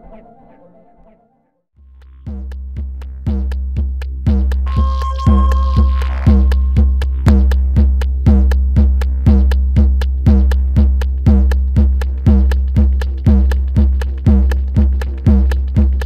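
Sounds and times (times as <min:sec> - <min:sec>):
deep bass: 0:01.8 - 0:16.0
drum machine beat: 0:01.8 - 0:16.0
high ticks: 0:01.9 - 0:16.0
held electronic tone: 0:04.6 - 0:07.8.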